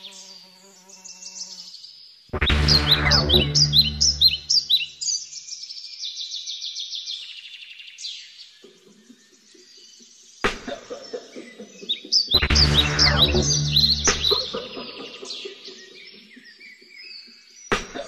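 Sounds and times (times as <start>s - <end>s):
birds chirping and trilling: 0.0s - 18.0s
backing music: 2.4s - 4.5s, 12.3s - 15.1s.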